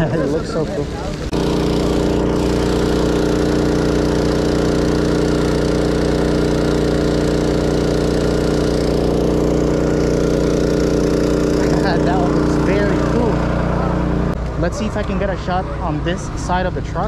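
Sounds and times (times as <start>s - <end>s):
water pump engine humming: 0.0s - 17.0s.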